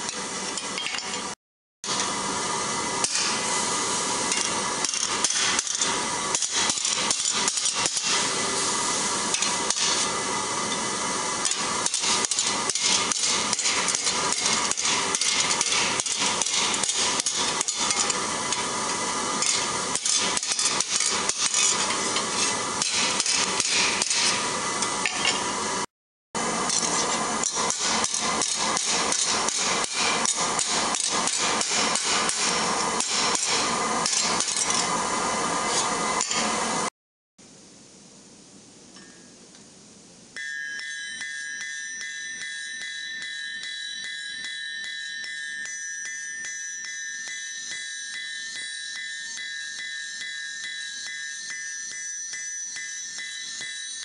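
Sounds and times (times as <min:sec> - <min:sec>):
hammer ringing on steel sheet: 0:40.4 - 0:54.0.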